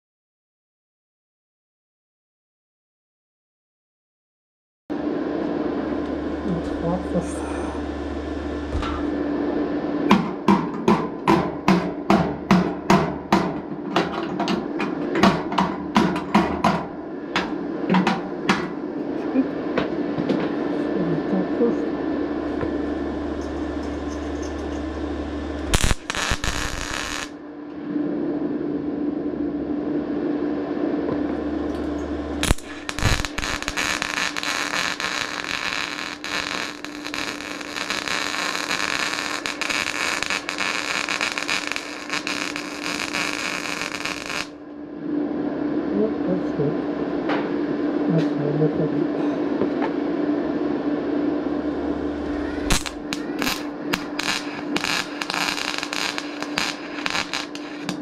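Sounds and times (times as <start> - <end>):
welding arc crackling: 22.5 - 27.4, 31.7 - 44.6, 52.2 - 58.0.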